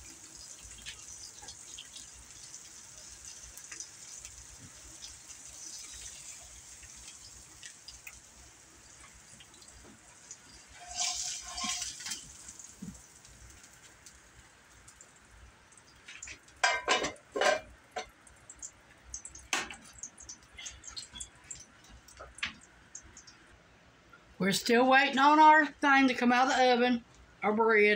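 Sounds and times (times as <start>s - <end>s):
spatula scraping frying pan: 10.6s - 12.3s
pan clanking on stove: 10.8s - 12.3s, 16.6s - 18.2s.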